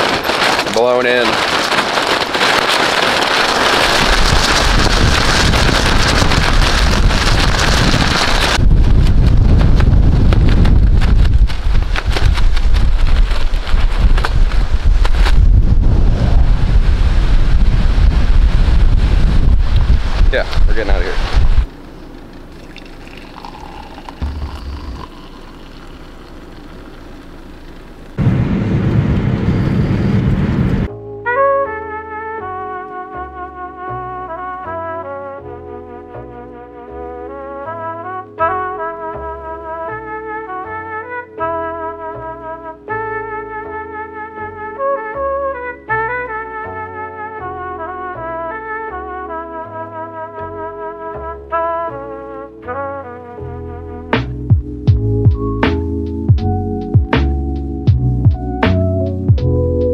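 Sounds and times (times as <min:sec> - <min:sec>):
crackle: 0:00.0 - 0:15.6, 0:21.2 - 0:30.9
wind gusts buffeting microphone: 0:00.0 - 0:21.7, 0:28.2 - 0:30.9
car road and engine rumble: 0:00.0 - 0:30.9.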